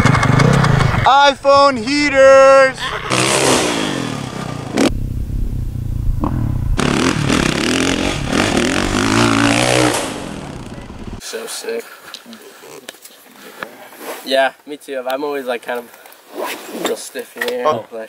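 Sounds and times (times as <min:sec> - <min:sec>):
dirt bike engine revving: 0:00.0 - 0:11.2.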